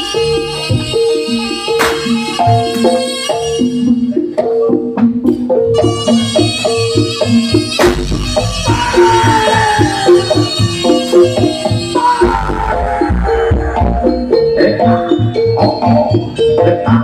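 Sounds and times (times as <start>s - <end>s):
traditional music over pa: 0.0s - 17.0s
drum beat: 1.8s - 3.0s, 7.8s - 14.3s.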